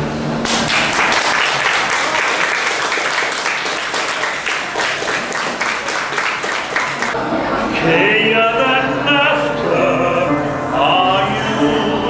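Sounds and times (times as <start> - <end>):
audience applauding: 0.4 - 7.2.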